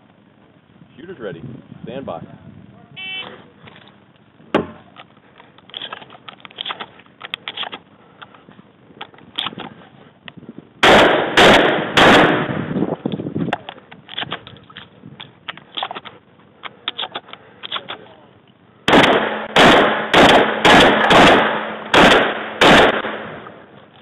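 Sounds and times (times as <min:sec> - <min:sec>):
shotgun shots: 0:10.8 - 0:12.8, 0:18.9 - 0:23.7.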